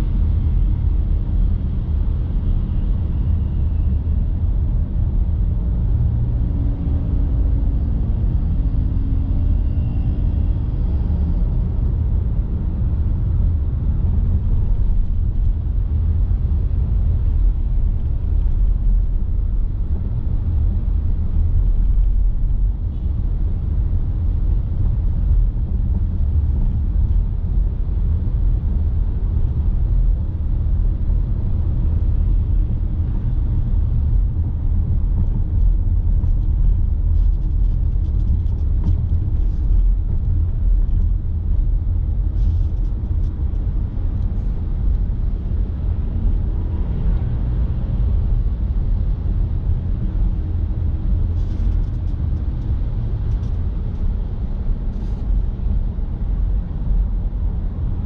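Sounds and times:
car engine and road noise: 0:00.0 - 0:58.0.

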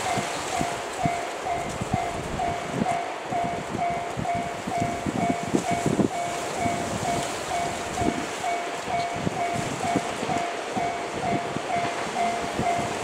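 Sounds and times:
level crossing alarm ringing: 0:00.0 - 0:13.0
wind on microphone: 0:00.0 - 0:13.0.

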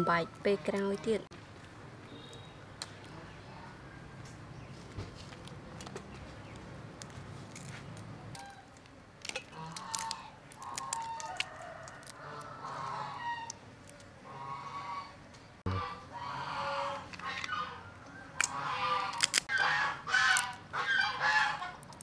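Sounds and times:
crab shell cracking: 0:07.0 - 0:14.1, 0:18.4 - 0:22.0
chickens calling: 0:09.5 - 0:22.0
rooster crowing: 0:10.9 - 0:13.5.

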